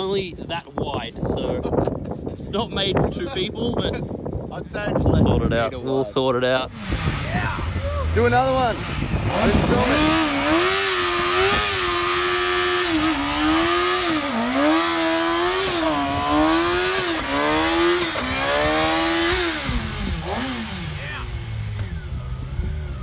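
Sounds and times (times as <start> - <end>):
motorcycle engine at high revs: 6.6 - 23.0.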